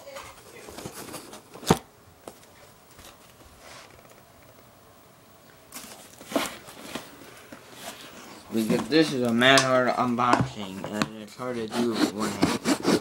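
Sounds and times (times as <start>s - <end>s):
cardboard scraping and rustling: 0.1s - 1.8s, 5.7s - 9.3s.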